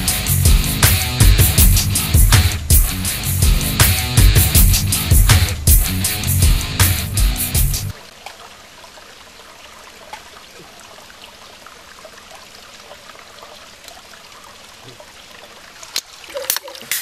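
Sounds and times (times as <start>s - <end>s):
heavy rock music: 0.0s - 7.9s
stream trickling: 7.9s - 17.0s.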